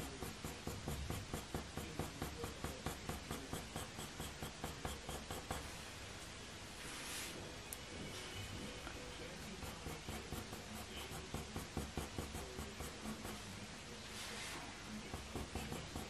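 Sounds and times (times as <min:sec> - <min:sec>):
pencil scratching on paper: 0:00.0 - 0:05.8, 0:09.2 - 0:16.0.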